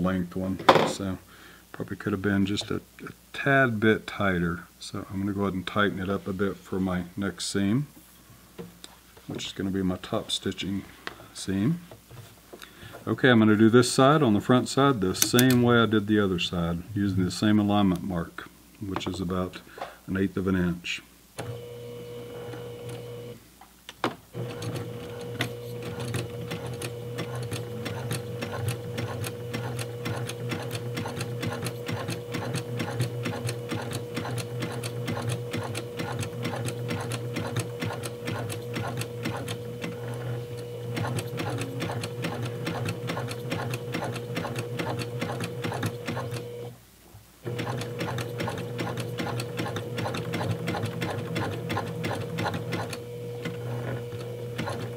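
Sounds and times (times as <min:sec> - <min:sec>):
sewing machine running: 0:24.4 - 0:46.7, 0:47.5 - 0:54.9
sewing machine restart click: 0:47.5 - 0:54.9.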